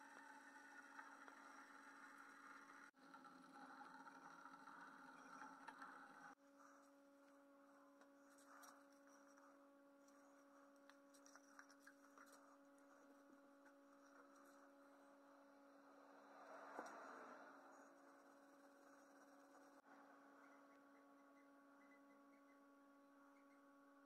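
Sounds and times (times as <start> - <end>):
faint steady hum: 0.0 - 24.0.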